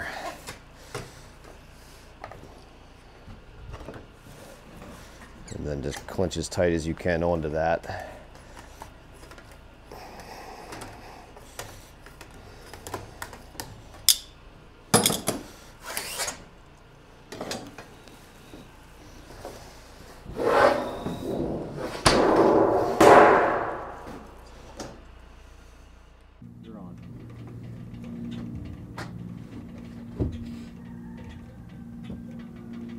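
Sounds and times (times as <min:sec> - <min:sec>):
sheet metal rasping: 0:20.2 - 0:24.1.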